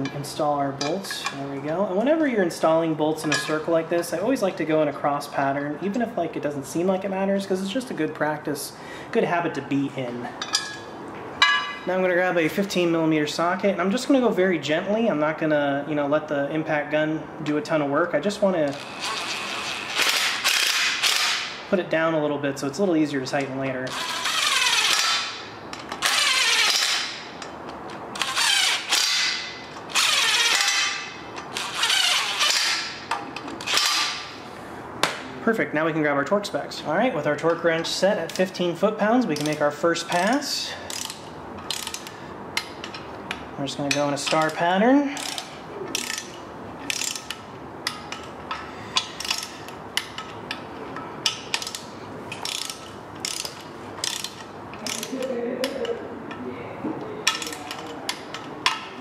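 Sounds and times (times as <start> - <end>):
impact wrench bursts: 18.7 - 21.6, 23.9 - 27.4, 28.2 - 34.4, 39.4 - 43.0, 44.2 - 50.6, 51.2 - 55.2.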